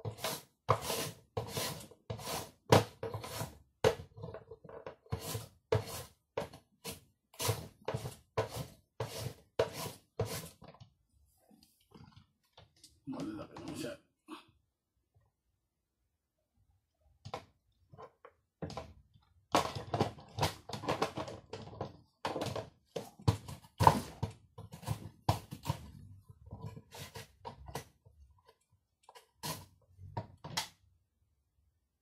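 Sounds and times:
carrot scraping on slicer blade: 0.0 - 3.6, 5.0 - 10.6.

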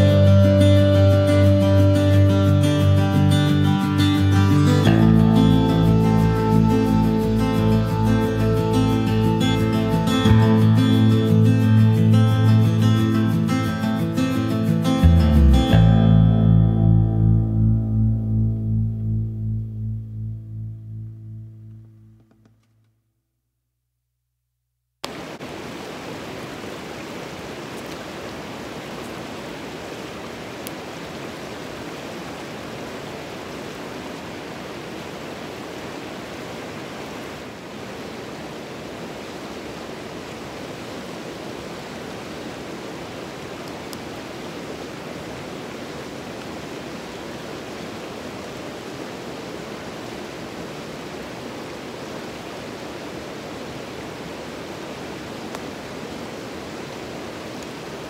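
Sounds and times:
river rapids rushing: 0.0 - 15.1.

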